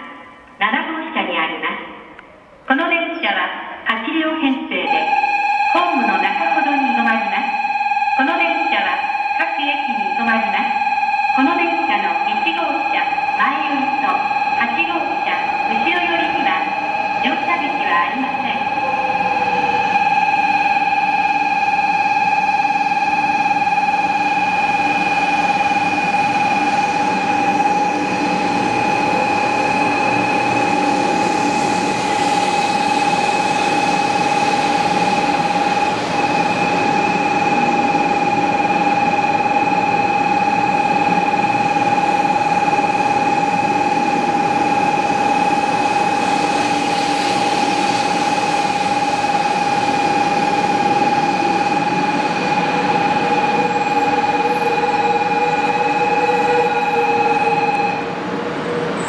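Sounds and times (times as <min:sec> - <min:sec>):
train rolling into station: 0:01.6 - 0:04.0, 0:04.9 - 0:59.0
high-pitched electronic tone: 0:36.4 - 0:58.1.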